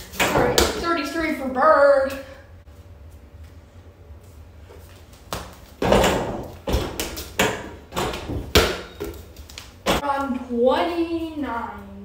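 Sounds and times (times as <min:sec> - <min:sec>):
ball banging hoop against door: 0:00.2 - 0:01.0, 0:05.3 - 0:10.0.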